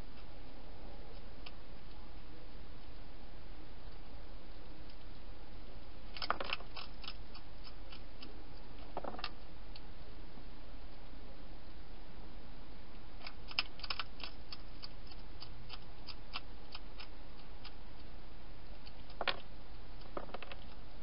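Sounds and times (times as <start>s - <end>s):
hedgehog crunching dry food: 6.1s - 8.3s, 13.2s - 18.1s.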